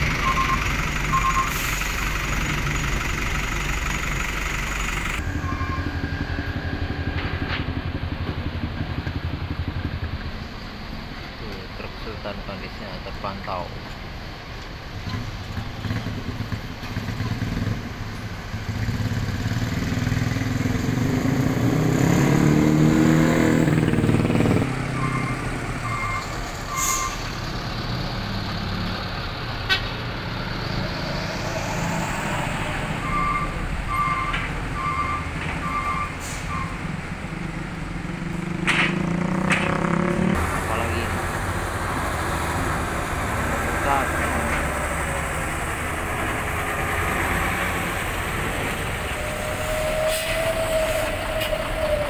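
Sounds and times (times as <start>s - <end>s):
diesel truck engine: 0.0s - 52.0s
short electronic beeps: 0.2s - 1.6s, 5.2s - 6.0s, 25.0s - 27.2s, 33.0s - 36.8s.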